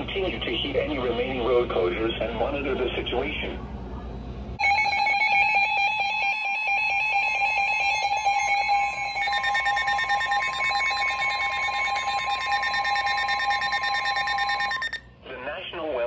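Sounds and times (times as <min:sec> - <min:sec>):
rapidly pulsing alarm beep: 0:04.6 - 0:15.0
steady high alarm tone: 0:04.6 - 0:15.0.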